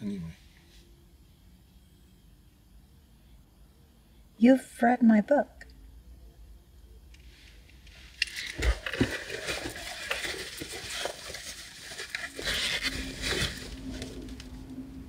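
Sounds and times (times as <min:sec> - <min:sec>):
low steady hum: 0:00.0 - 0:15.0
hand rummaging in fabric bag: 0:08.3 - 0:14.5.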